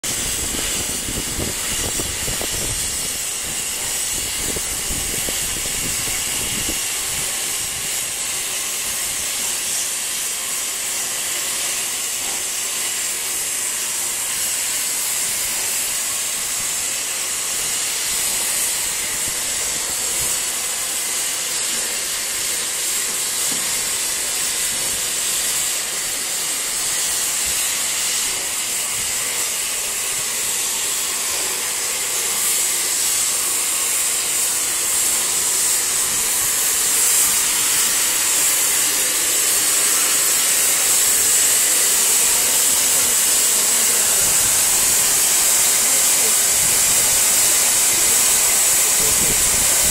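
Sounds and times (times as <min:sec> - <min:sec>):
steam locomotive hissing: 0:00.0 - 0:49.9.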